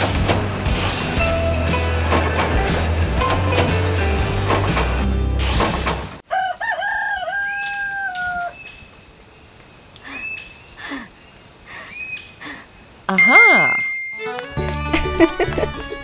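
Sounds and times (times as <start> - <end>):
music: 0.0 - 5.7, 14.0 - 16.0
rooster crowing: 6.2 - 8.7.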